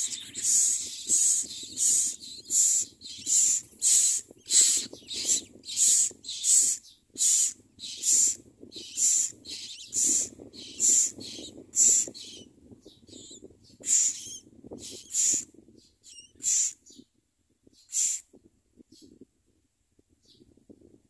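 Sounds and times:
nestlings hissing begging calls: 0:00.0 - 0:12.4, 0:13.2 - 0:15.5, 0:16.1 - 0:16.8, 0:17.9 - 0:18.2.

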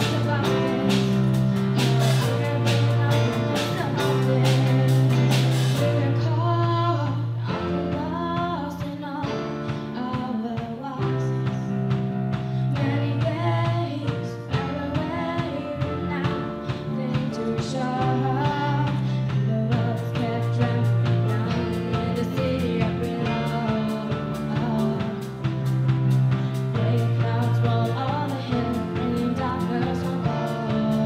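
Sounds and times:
guitars: 0:00.0 - 0:08.0
low bass or keyboard notes: 0:00.0 - 0:08.8, 0:11.3 - 0:31.0
woman singing: 0:00.0 - 0:12.0, 0:12.6 - 0:25.7, 0:26.3 - 0:31.0
drum kit: 0:00.0 - 0:31.0.

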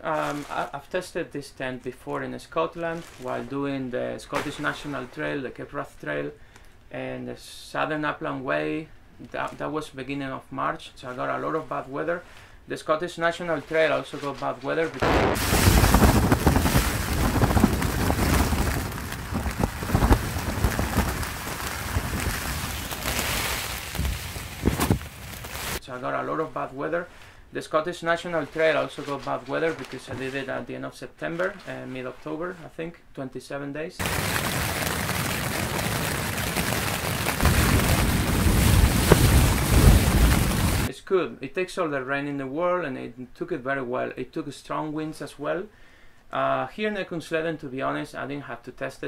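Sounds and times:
wind rumble on microphone: 0:15.0 - 0:25.4, 0:34.0 - 0:40.9
rain beating on tent: 0:15.0 - 0:25.8, 0:34.0 - 0:40.9.

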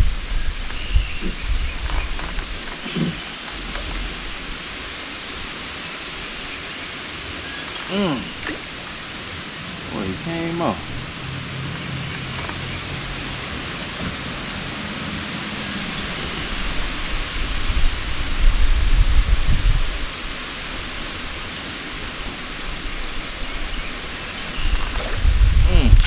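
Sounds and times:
steady outdoor hiss: 0:00.0 - 0:26.0
low rumble: 0:24.5 - 0:26.0.

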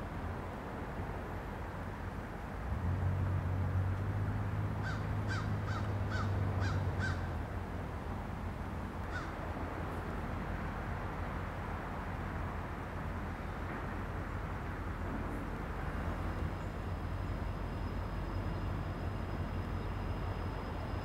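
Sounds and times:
diesel locomotive rumble: 0:00.0 - 0:21.0
crow cawing: 0:04.8 - 0:07.2, 0:09.1 - 0:09.3.

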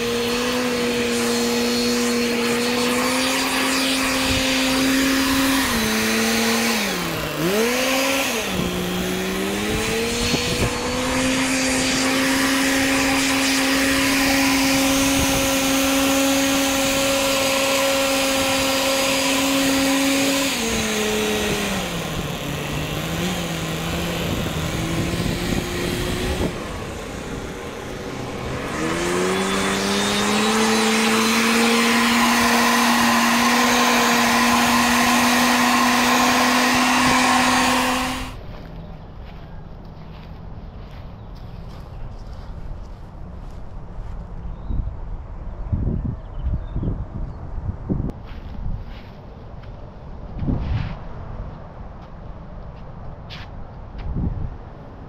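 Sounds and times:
leaf blower whining: 0:00.0 - 0:43.6.

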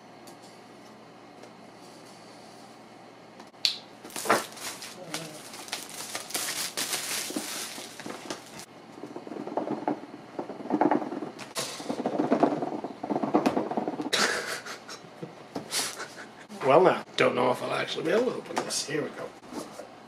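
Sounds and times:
hands rustling cardboard box: 0:04.1 - 0:08.7.

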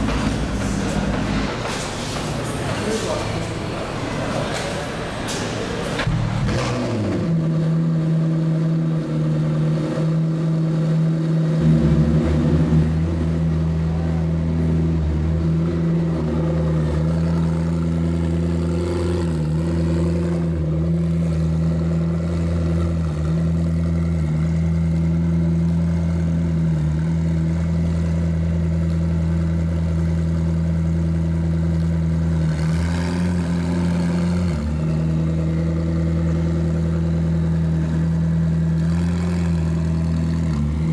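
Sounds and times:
car engine idling: 0:00.0 - 0:40.9.

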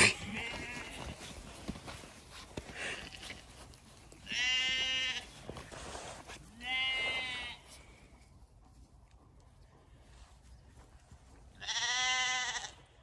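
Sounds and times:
sheep bleating: 0:00.0 - 0:01.4, 0:04.2 - 0:05.4, 0:06.5 - 0:07.8, 0:11.6 - 0:12.9.

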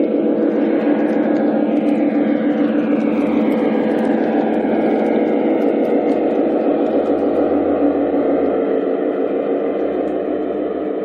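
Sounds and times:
model locomotive diesel rumble: 0:00.0 - 0:11.0.

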